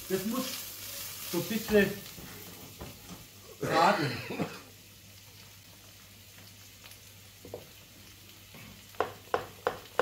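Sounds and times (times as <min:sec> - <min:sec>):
food sizzling in oil: 0:00.0 - 0:10.0
knife knocking on cutting board: 0:09.0 - 0:10.0.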